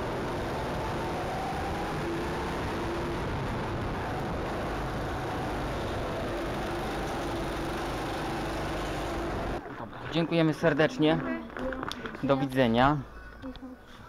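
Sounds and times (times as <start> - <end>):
go-kart engine running: 0.0 - 9.6.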